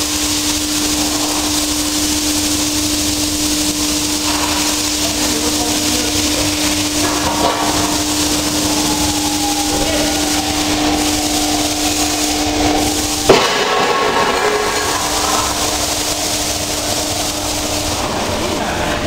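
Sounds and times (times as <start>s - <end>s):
machine hum: 0.0s - 19.0s
loud metallic clang: 6.9s - 18.2s.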